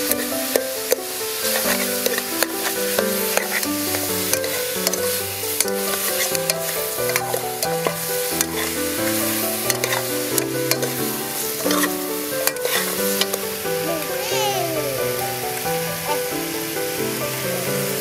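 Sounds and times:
meat sizzling in a pot: 0:00.0 - 0:18.0
slow background music: 0:00.0 - 0:18.0
ladle clinking against pot: 0:04.3 - 0:08.8, 0:09.7 - 0:11.0.

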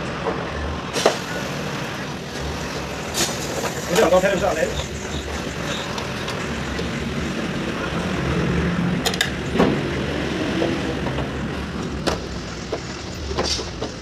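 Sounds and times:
engine rumble: 0:00.0 - 0:14.0
motorcycle parts clicking and knocking: 0:09.0 - 0:09.7, 0:12.0 - 0:14.0.

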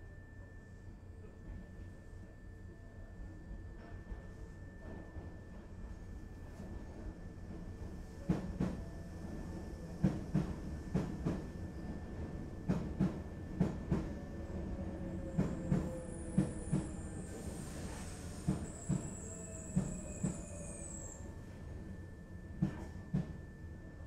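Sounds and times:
low rumble of train car: 0:00.0 - 0:24.0.

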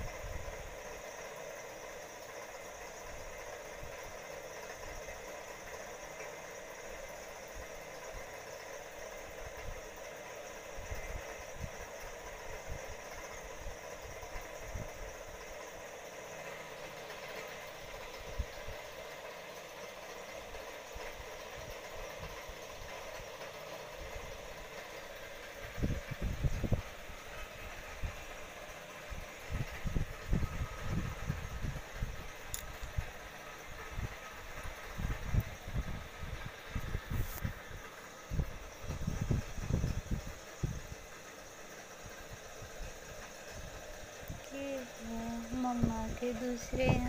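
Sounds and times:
mechanical hum and hiss: 0:00.0 - 0:47.0.

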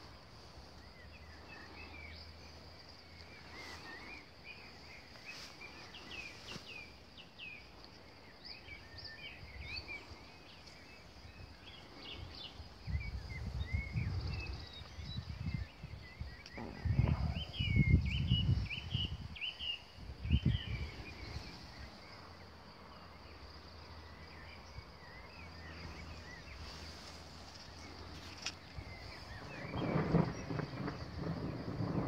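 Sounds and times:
birds chirping and whistling: 0:00.8 - 0:07.7, 0:08.4 - 0:22.4, 0:24.2 - 0:32.0
thumping on microphone: 0:16.6 - 0:17.9.

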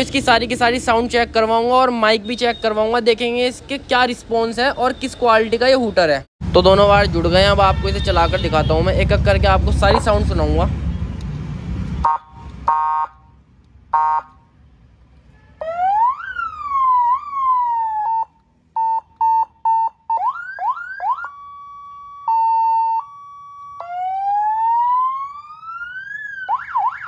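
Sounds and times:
electronic car siren: 0:12.0 - 0:13.2, 0:15.6 - 0:27.0.

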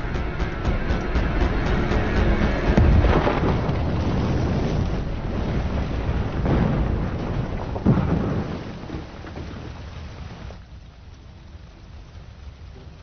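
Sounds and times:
deep rumbling explosion: 0:00.0 - 0:09.7
thud: 0:00.5 - 0:04.8
fire burning: 0:01.0 - 0:13.0.

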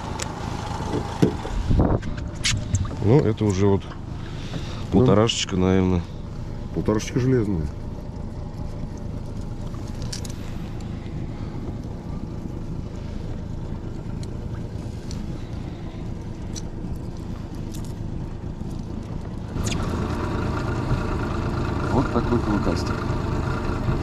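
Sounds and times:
boat rumbling: 0:00.0 - 0:24.0
wind on microphone: 0:00.9 - 0:03.1.

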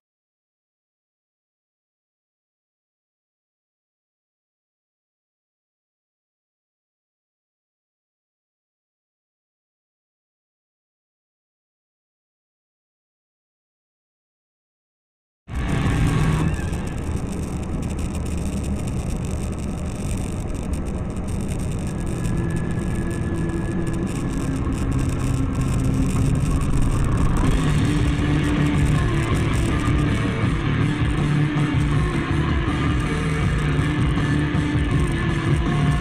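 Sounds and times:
car engine and road noise: 0:15.5 - 0:36.0
music playing: 0:21.4 - 0:36.0.

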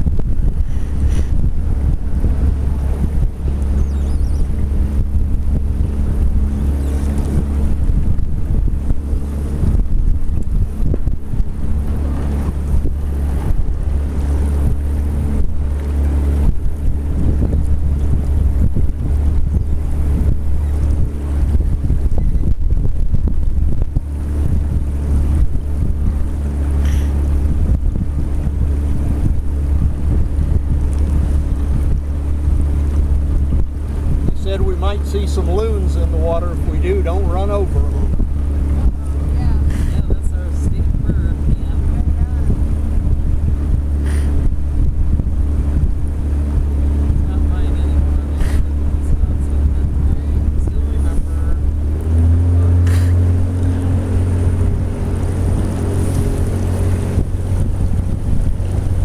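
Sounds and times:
outboard motor droning: 0:00.0 - 0:59.0
wind buffeting microphone: 0:00.0 - 0:59.0.

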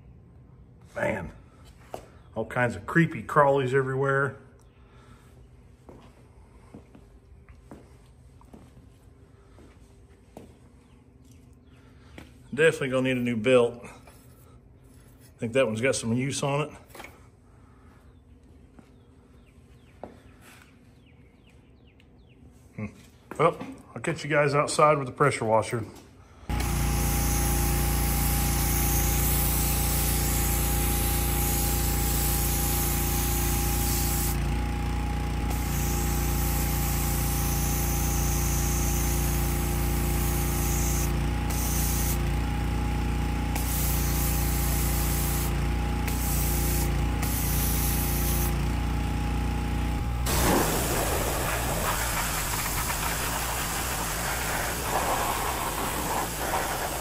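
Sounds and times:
high-pressure spray hissing: 0:26.5 - 0:34.4, 0:35.5 - 0:42.3, 0:43.5 - 0:48.6, 0:50.2 - 0:57.0
pressure washer motor humming: 0:26.5 - 0:57.0.

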